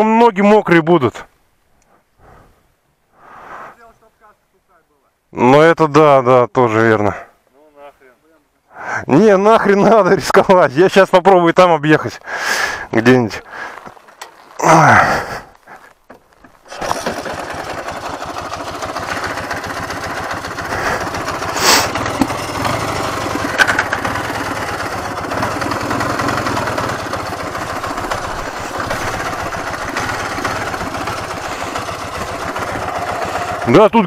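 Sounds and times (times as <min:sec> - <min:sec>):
motorcycle engine running: 0:16.6 - 0:34.0.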